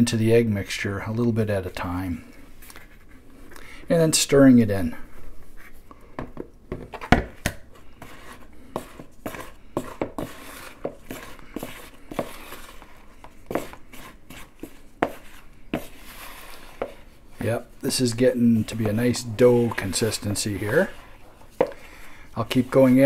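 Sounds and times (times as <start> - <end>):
wooden spoon knocking and scraping bowl: 6.2 - 23.0.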